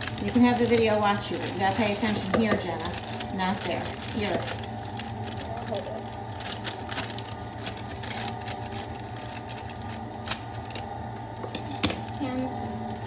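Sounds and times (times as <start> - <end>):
dishwasher humming: 0.0 - 13.0
plastic bag crackling: 0.0 - 13.0.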